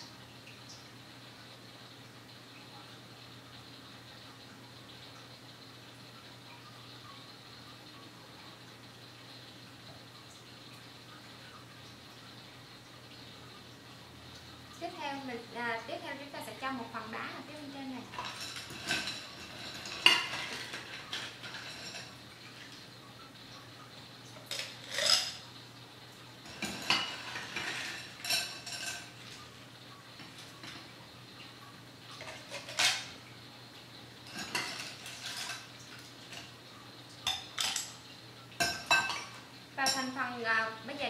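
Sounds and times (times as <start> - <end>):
ice clinking against metal and glass: 18.1 - 22.2, 24.4 - 25.4, 26.4 - 29.5, 30.2 - 30.9, 32.2 - 33.2, 34.2 - 36.5, 37.2 - 38.0, 38.6 - 40.2.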